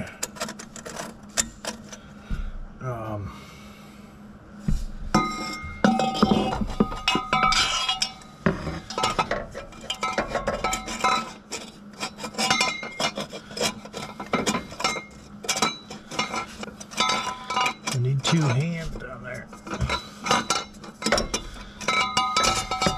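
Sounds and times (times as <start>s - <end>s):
metal exhaust pipe clanking: 4.7s - 22.9s
pipe ringing: 5.1s - 11.6s, 12.2s - 22.9s.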